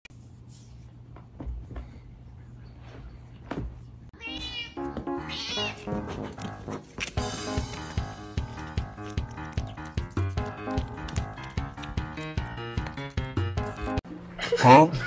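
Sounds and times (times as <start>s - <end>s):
cat meowing: 4.2s - 5.8s
background music: 4.2s - 14.0s.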